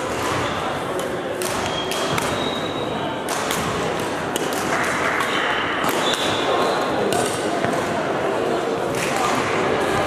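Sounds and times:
echoing hall chatter: 0.0s - 10.0s
racket hitting shuttlecock: 0.1s - 2.4s, 3.2s - 6.4s.

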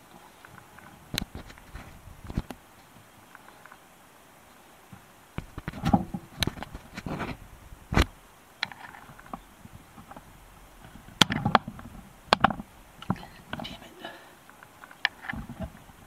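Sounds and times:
light clicks and knocks: 0.0s - 3.9s, 4.9s - 16.0s
short rustles: 0.0s - 3.9s, 4.9s - 16.0s.

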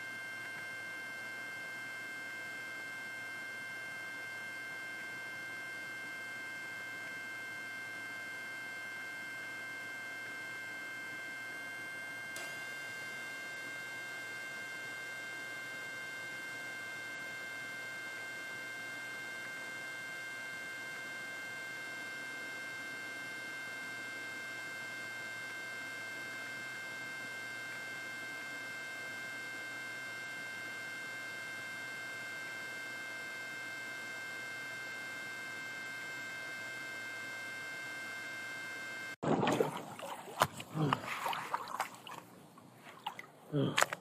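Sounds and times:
electrical hum with high whine: 0.0s - 44.0s.

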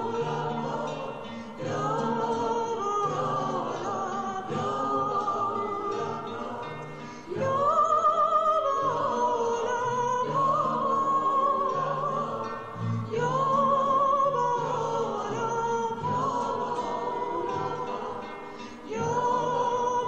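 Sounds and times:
singing with vibrato: 0.0s - 20.0s.

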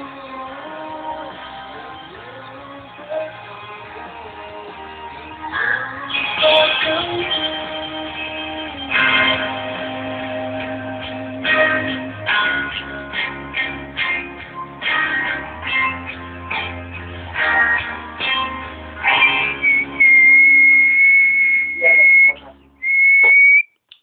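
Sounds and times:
strummed guitar chords: 0.0s - 22.8s
high whistled note: 19.5s - 23.6s.

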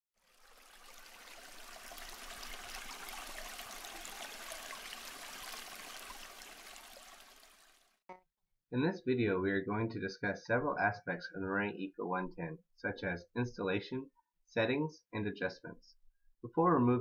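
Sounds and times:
water running: 0.2s - 7.9s.

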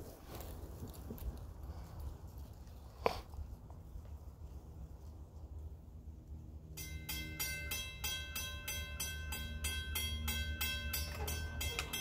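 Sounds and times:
railroad crossing bell clanging: 6.8s - 12.0s.

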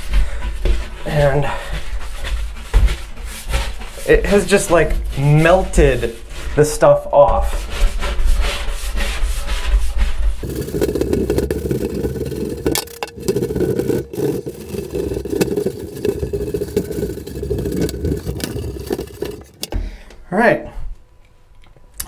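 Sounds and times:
scrub brush scrubbing glass: 2.5s - 19.6s.

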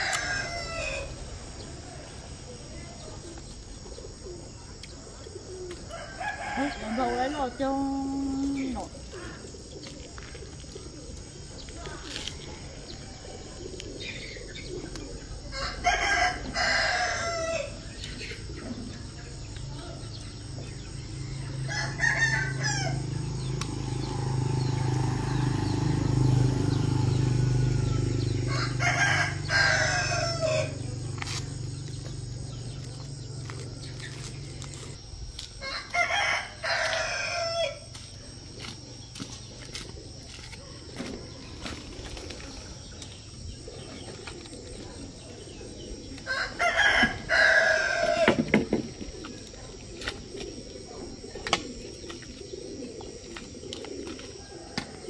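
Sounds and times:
rooster crowing: 0.0s - 1.3s, 5.9s - 7.5s, 15.5s - 17.8s, 21.4s - 31.0s, 35.6s - 37.9s, 46.2s - 48.5s.

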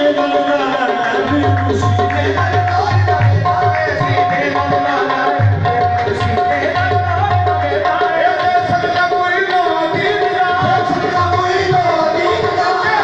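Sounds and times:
tabla playing a steady rhythm: 0.0s - 13.0s.

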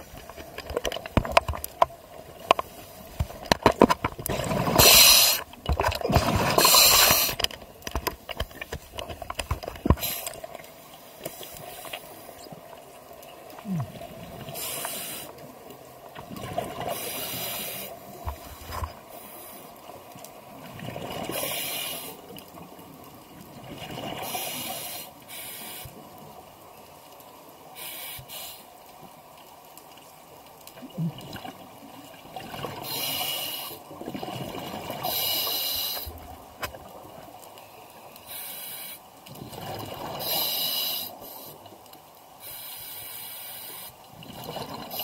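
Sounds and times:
gurgling exhaled bubbles: 4.2s - 7.5s, 44.2s - 45.0s
regulator hissing inhalations: 14.6s - 15.4s, 16.9s - 18.0s, 24.3s - 26.0s, 27.8s - 28.7s, 38.2s - 39.1s, 40.2s - 41.6s, 42.4s - 44.0s.

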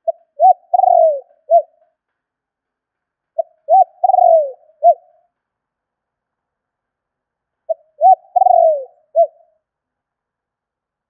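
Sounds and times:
dove cooing: 0.0s - 1.8s, 3.4s - 5.2s, 7.7s - 9.5s.

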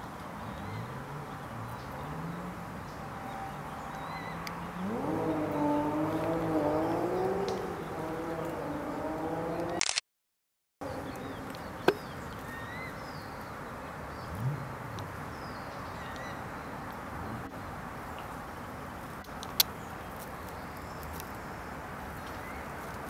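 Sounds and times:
sharp click: 9.6s - 10.0s.

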